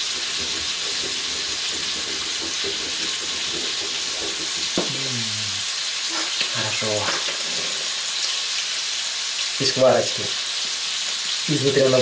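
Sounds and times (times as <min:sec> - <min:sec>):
meat sizzling in a pan: 0:00.0 - 0:12.0
man exhaling: 0:04.8 - 0:05.7.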